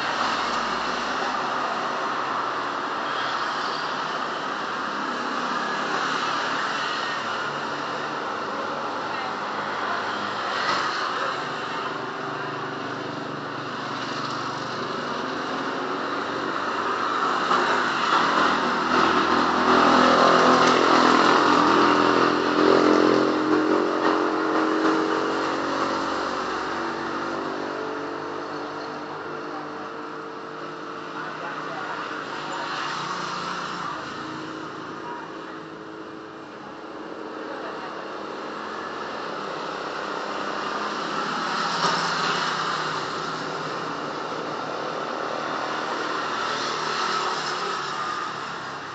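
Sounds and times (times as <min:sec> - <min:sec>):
motorbike passing: 0:03.9 - 0:48.9.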